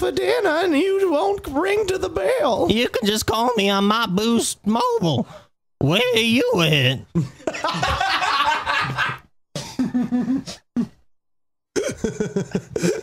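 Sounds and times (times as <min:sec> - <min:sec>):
men laughing: 0:07.1 - 0:10.6, 0:11.8 - 0:13.0.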